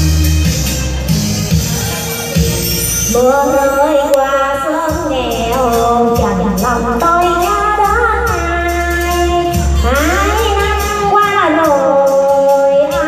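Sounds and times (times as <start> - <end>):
backing music with percussion beat: 0.0 - 13.0
woman singing into microphone: 3.0 - 13.0.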